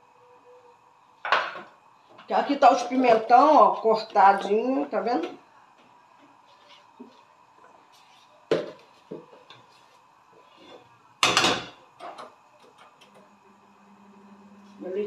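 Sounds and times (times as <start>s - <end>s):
low steady hum: 0.0s - 15.0s
dishes and utensils clattering: 10.6s - 13.3s.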